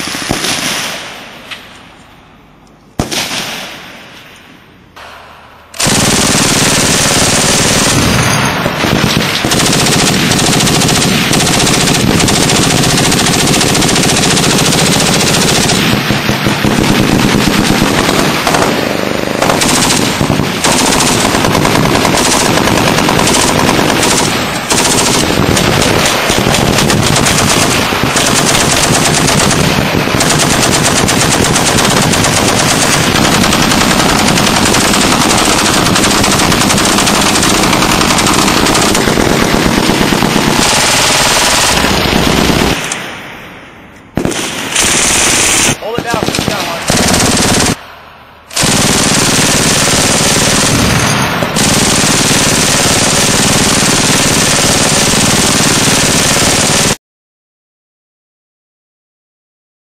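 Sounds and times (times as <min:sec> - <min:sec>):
machine guns firing bursts: 0:00.0 - 0:01.0, 0:05.8 - 0:42.9, 0:44.2 - 0:47.8, 0:48.5 - 0:57.0.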